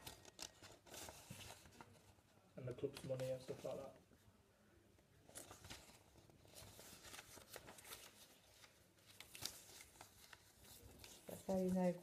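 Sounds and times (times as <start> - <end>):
paper rustling and ticking: 0.0 - 4.0, 5.3 - 12.0.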